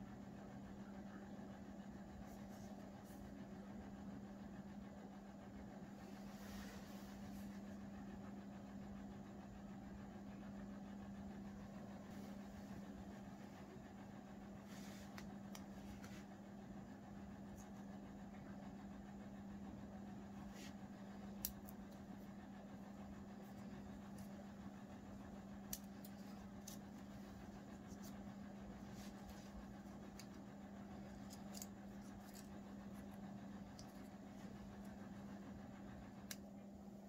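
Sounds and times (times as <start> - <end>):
steady low hum: 0.0 - 37.0
cable handling clicks and rustles: 23.4 - 36.6.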